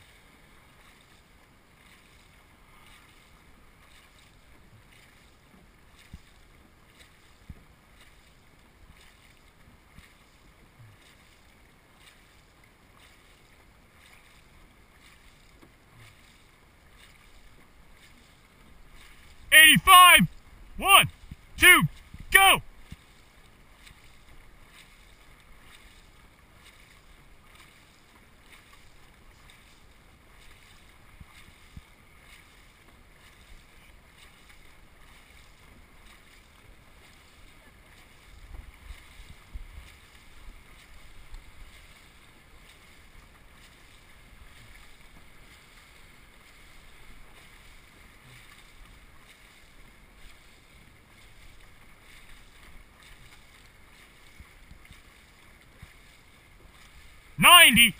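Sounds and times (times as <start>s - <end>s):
paddles splashing: 0.1s - 57.9s
water rushing: 18.8s - 22.6s.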